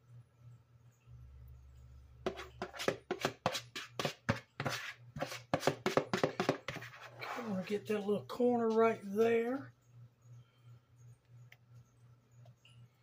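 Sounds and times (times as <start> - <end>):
metal spoon scraping bowl: 2.3 - 7.9.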